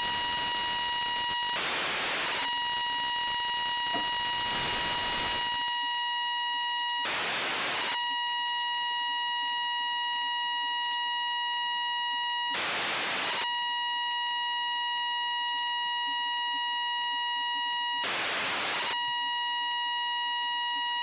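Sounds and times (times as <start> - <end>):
radio hiss: 0.0 - 5.6.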